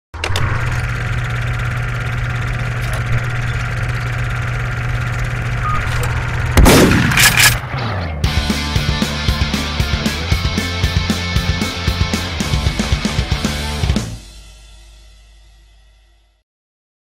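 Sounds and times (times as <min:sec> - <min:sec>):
low drone: 0:00.2 - 0:10.4
loud boom with falling tail: 0:06.4 - 0:07.2.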